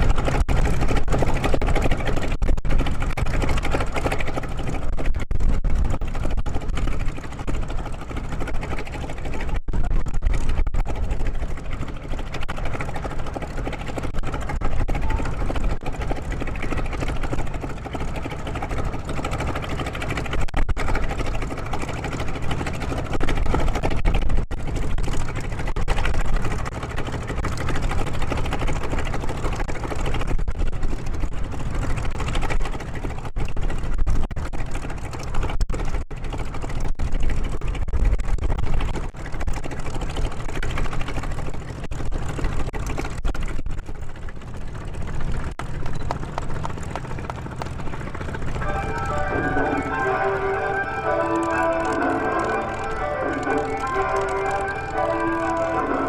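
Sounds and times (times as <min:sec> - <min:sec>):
radial piston engines running: 0:46.0 - 0:56.0.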